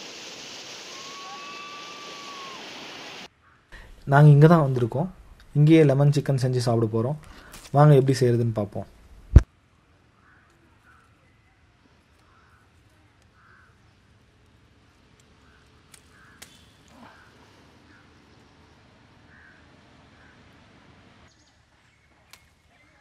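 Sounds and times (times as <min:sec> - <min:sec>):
faint outdoor ambience: 0:00.0 - 0:23.0
distant bird calls: 0:10.0 - 0:23.0
sharp clicks of picking limes: 0:15.1 - 0:17.0.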